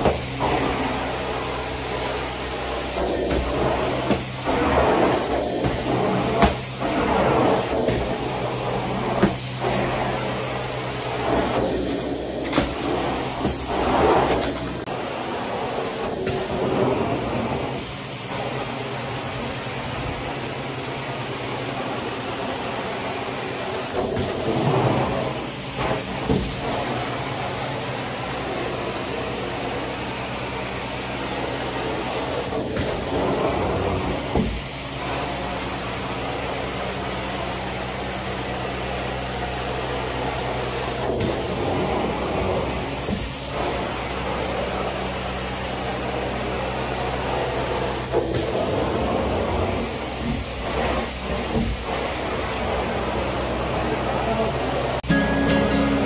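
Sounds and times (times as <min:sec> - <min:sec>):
vacuum suction rushing through hose: 0:00.0 - 0:27.6.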